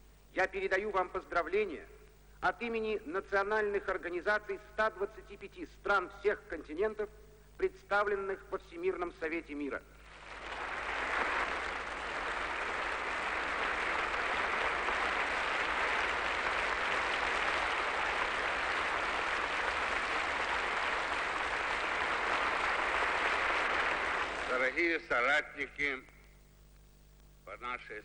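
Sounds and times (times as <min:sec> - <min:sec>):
audience applauding: 0:10.0 - 0:24.9.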